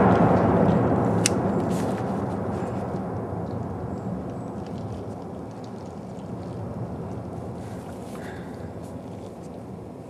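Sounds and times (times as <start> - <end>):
sharp crack: 0.0 - 6.8
explosion rumble: 0.0 - 7.7.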